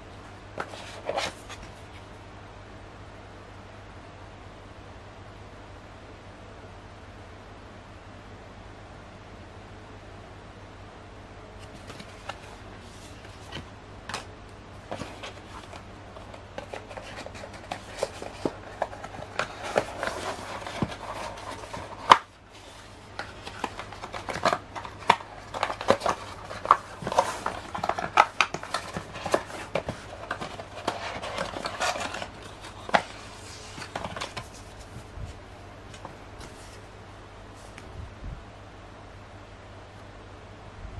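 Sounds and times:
cardboard and paper rustling: 0.6s - 2.1s, 11.6s - 36.9s.

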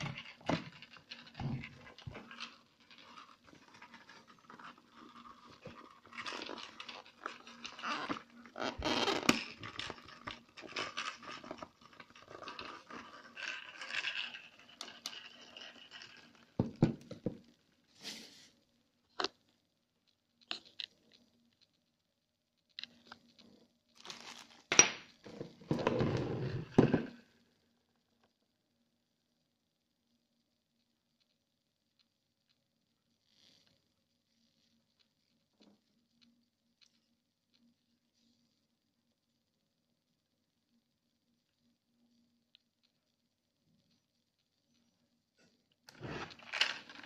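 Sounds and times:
plastic wrapping rustling: 24.0s - 24.8s.

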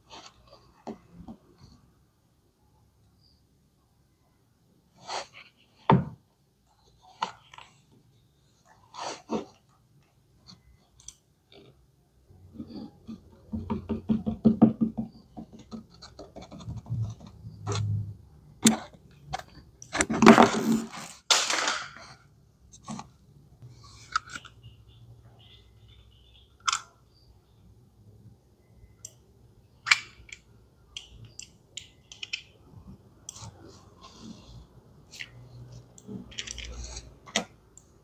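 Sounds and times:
plastic toys scraping and rubbing: 8.7s - 9.6s, 18.7s - 21.3s, 33.3s - 37.5s.

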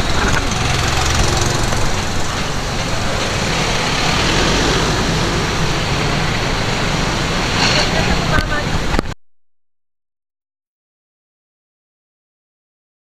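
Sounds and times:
motorcycle passing: 0.0s - 9.0s
street traffic passing: 0.0s - 9.2s
van passing: 0.0s - 9.2s
vehicle engines running: 0.0s - 9.2s.

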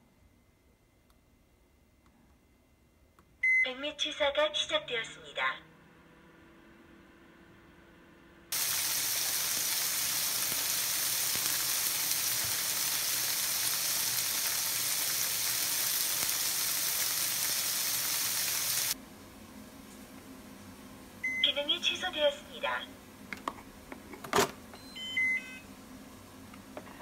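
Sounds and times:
liquid sizzling in a pot: 8.5s - 19.0s.

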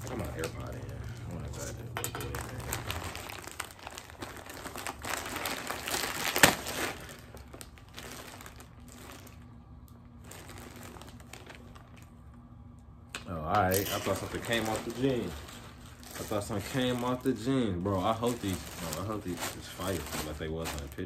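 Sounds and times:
plastic tearing: 0.0s - 12.1s, 13.8s - 21.0s
plastic bag crinkling: 0.0s - 12.2s, 13.6s - 21.0s.

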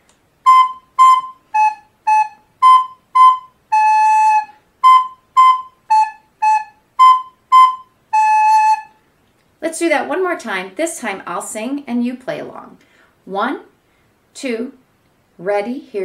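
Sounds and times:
recorder playing short notes: 0.4s - 9.0s.

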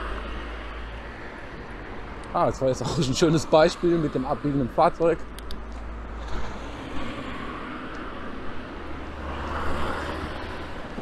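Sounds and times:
car passing: 5.9s - 11.0s.

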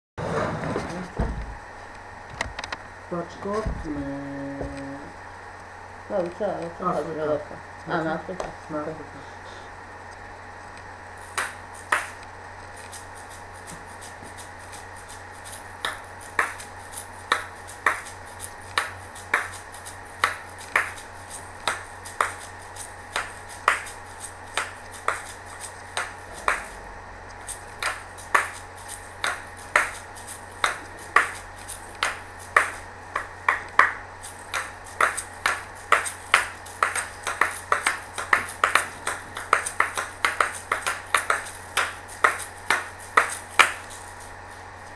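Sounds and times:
shaker shells clacking: 11.2s - 44.8s.

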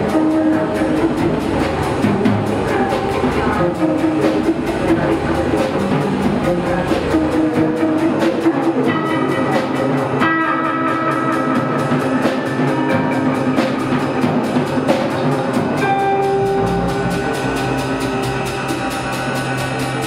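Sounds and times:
drum kit fast beat: 0.0s - 20.0s
electric guitars holding long notes: 0.0s - 20.0s.

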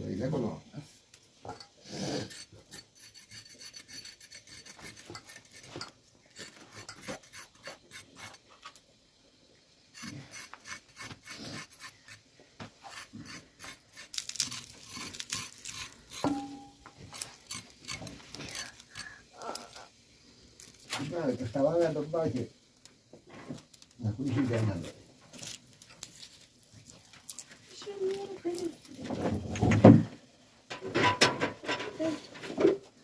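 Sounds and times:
knife scraping carrots: 1.9s - 8.4s, 10.0s - 12.2s, 12.8s - 19.8s.

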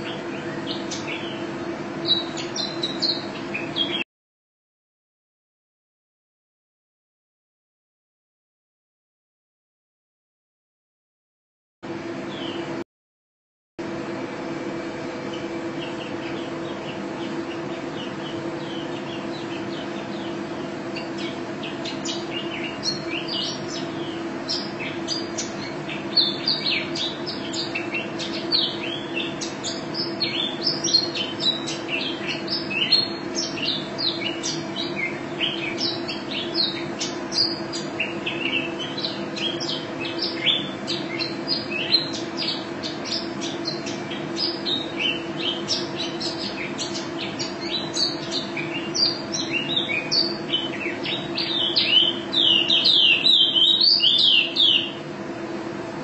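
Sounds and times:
bird twittering song: 0.0s - 4.0s, 12.3s - 12.8s, 15.2s - 55.0s
steady low hum: 0.0s - 4.0s, 13.8s - 56.0s.

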